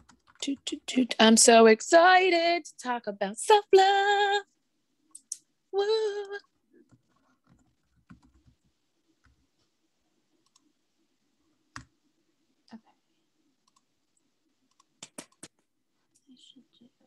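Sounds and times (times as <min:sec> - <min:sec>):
faint clicks: 0:10.4 - 0:10.7, 0:13.6 - 0:16.3.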